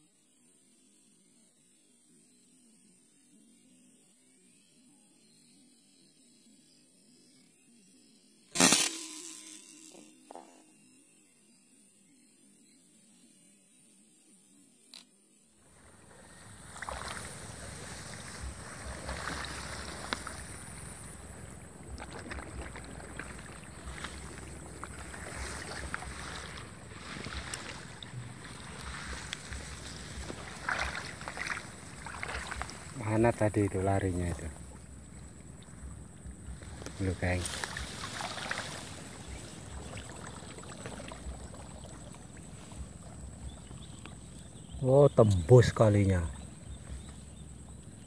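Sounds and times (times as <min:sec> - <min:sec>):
small ticks: 0:14.9 - 0:15.2, 0:16.7 - 0:33.0, 0:34.7 - 0:44.6
grass stalks rustling: 0:16.0 - 0:33.0, 0:36.4 - 0:41.1.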